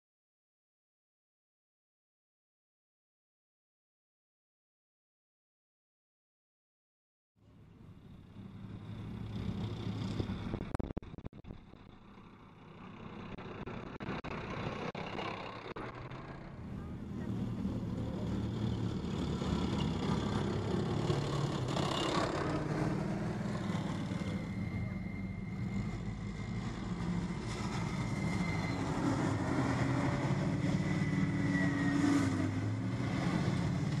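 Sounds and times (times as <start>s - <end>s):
tank diesel engine running hard: 7.6s - 34.0s.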